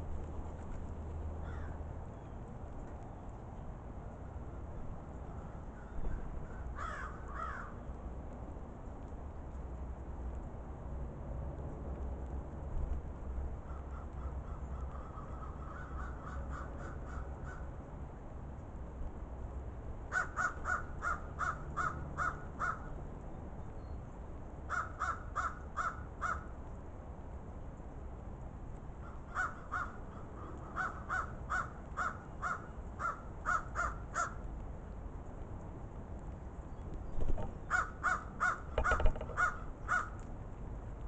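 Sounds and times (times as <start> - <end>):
crows cawing: 1.4 - 1.8, 5.3 - 7.8, 13.7 - 17.7, 20.1 - 22.9, 24.7 - 26.5, 29.0 - 34.5, 37.6 - 40.2
thumps: 38.8 - 39.4.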